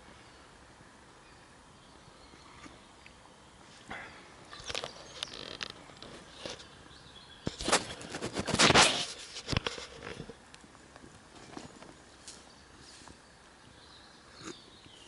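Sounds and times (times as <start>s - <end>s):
loud rustle: 7.5s - 10.4s.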